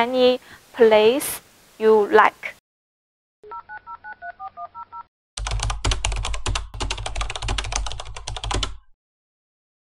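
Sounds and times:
keyboard typing: 3.6s - 8.9s.

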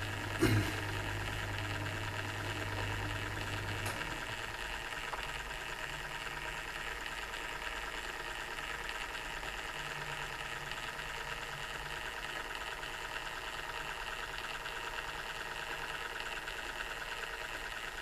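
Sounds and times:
low motor hum: 0.0s - 6.9s.

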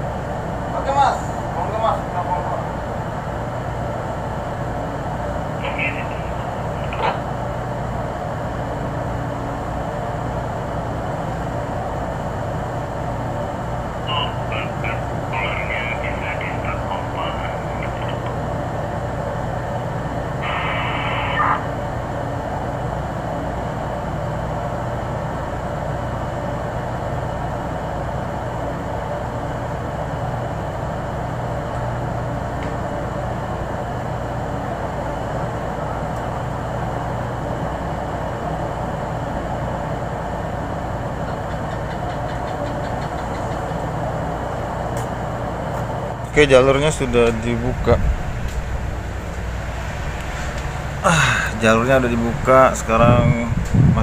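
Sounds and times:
heavy machinery drone: 0.0s - 54.0s
brief high squawk: 20.4s - 21.8s.

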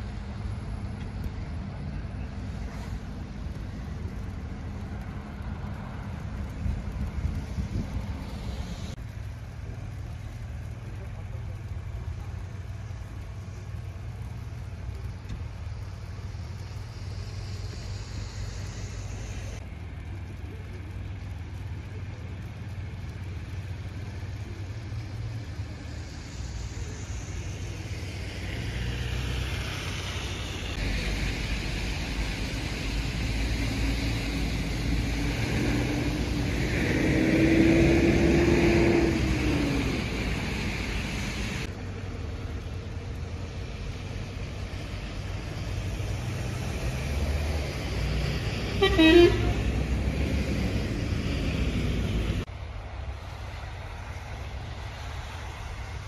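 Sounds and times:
road traffic rumble: 0.0s - 56.0s
vehicle passing close: 24.4s - 41.7s.

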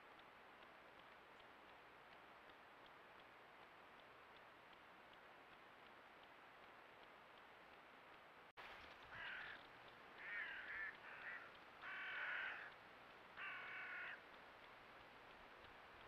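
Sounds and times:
faint steady hiss: 0.0s - 16.0s
crow cawing: 9.1s - 12.8s, 13.4s - 14.2s.

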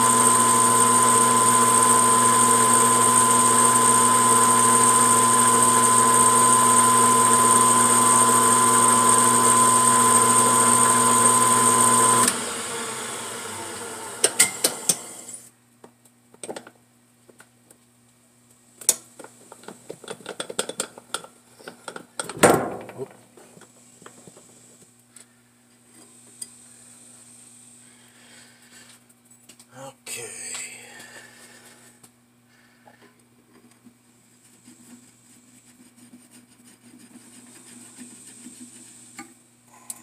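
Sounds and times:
metal lathe humming: 0.0s - 15.3s.

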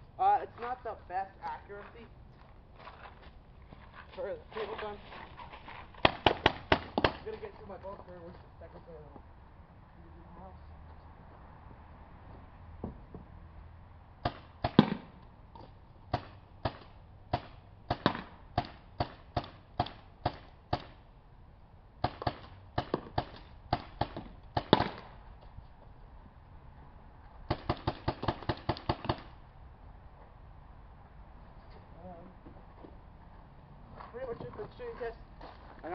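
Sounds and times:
paintball gun firing pops: 16.1s - 21.0s, 22.0s - 25.1s.

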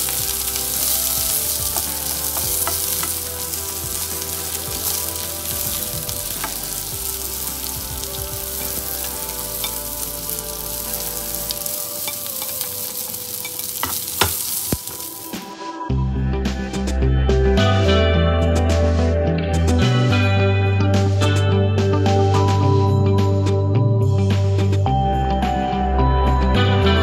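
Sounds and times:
onion sizzling in oil: 0.0s - 15.5s
garlic knocking into pan: 13.7s - 15.0s.

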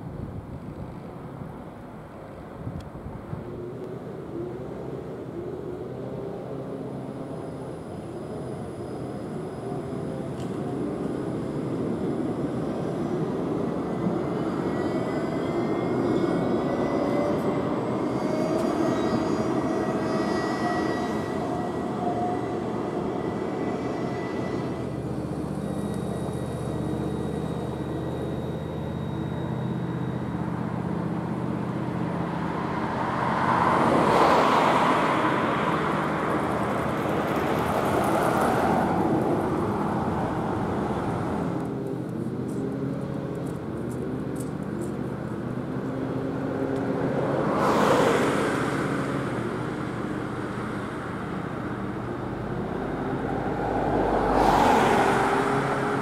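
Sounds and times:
street traffic: 0.0s - 56.0s
tram approaching: 0.0s - 56.0s
vehicle engines passing: 30.5s - 56.0s.

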